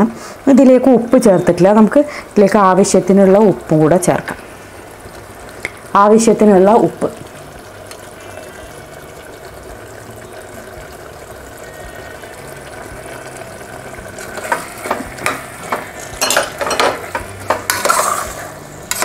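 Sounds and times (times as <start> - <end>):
curry sizzling in pot: 0.0 - 19.0
spoon clinking and scraping pot: 14.2 - 19.0.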